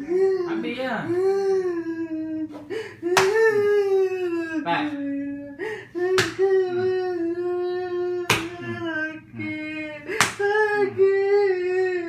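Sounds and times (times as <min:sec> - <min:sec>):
man crying out: 0:00.0 - 0:12.0
sharp slaps: 0:03.1 - 0:03.5, 0:06.2 - 0:06.6, 0:08.3 - 0:08.6, 0:10.1 - 0:10.6.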